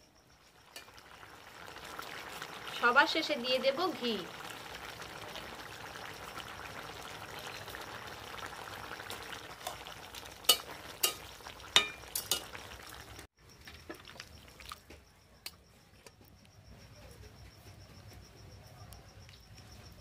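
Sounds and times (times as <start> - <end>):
curry sizzling and bubbling: 0.2 - 15.0.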